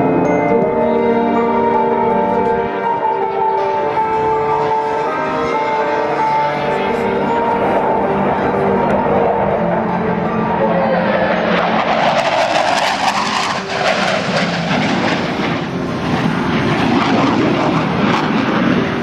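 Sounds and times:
jet roar flying past: 0:02.9 - 0:19.0
sharp jet crackle: 0:11.8 - 0:15.8.

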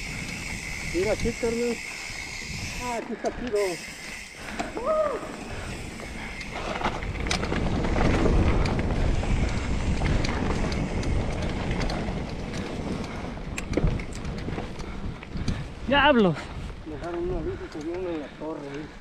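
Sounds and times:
tyres rolling on dirt: 0:00.0 - 0:19.0
wind rushing over microphone: 0:00.0 - 0:19.0
bike knocks and rattles: 0:06.5 - 0:14.8.

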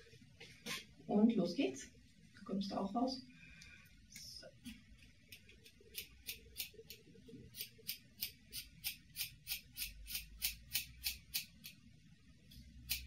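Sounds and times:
scissors snipping hair: 0:05.3 - 0:11.8.

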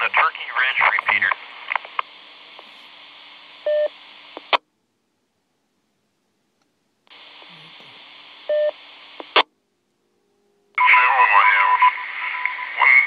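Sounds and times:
radio hiss: 0:00.0 - 0:04.6, 0:07.1 - 0:09.5, 0:10.8 - 0:13.0.

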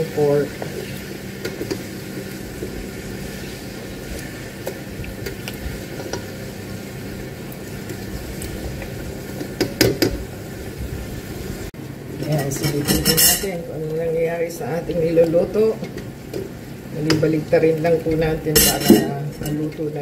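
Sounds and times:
pot boiling: 0:00.0 - 0:20.0
spoon scraping pot: 0:12.2 - 0:13.6.

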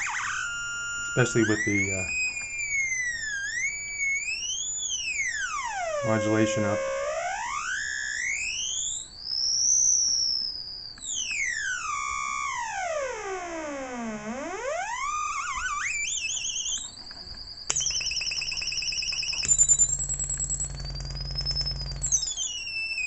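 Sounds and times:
fast-warbling high tone: 0:00.0 - 0:08.0, 0:17.7 - 0:23.0
sweeping electronic synth tone: 0:00.0 - 0:10.0, 0:11.1 - 0:17.0, 0:17.7 - 0:23.0
low hum: 0:17.7 - 0:22.5.

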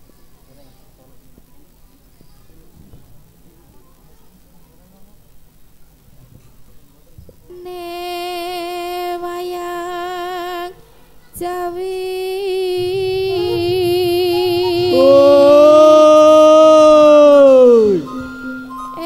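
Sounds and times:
person singing long wavering notes: 0:11.4 - 0:19.0.

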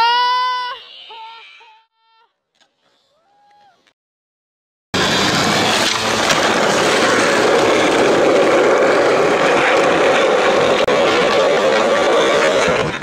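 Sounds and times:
skateboard wheels rolling on asphalt: 0:05.0 - 0:13.0.

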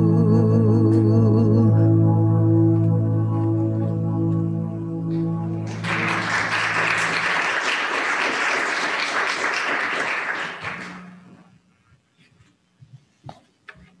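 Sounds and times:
sung solo held chord: 0:00.0 - 0:06.5
congregation applauding: 0:05.6 - 0:11.2.

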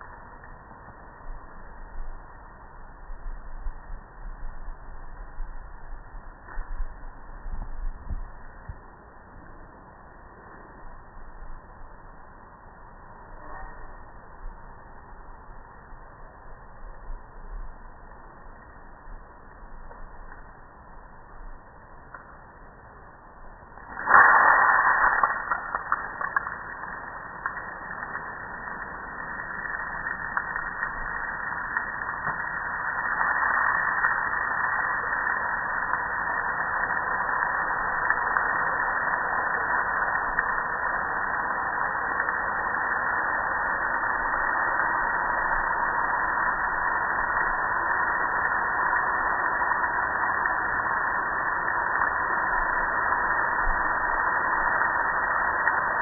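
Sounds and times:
hose water spraying on metal: 0:23.8 - 0:56.0.

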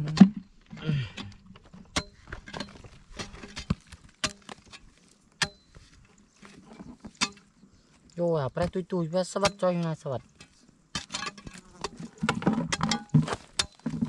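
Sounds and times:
hoe chopping into dry mud: 0:10.9 - 0:14.0.

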